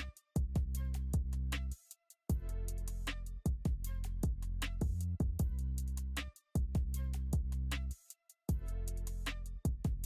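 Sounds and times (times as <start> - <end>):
sustained bass line: 2.3 - 7.9.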